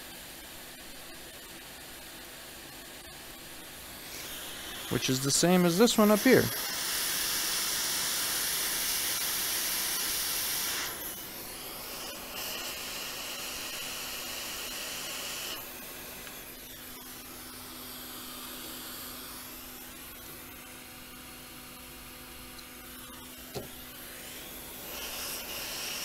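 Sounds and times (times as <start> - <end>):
hot air station hissing: 3.8 - 20.6, 22.8 - 26.0.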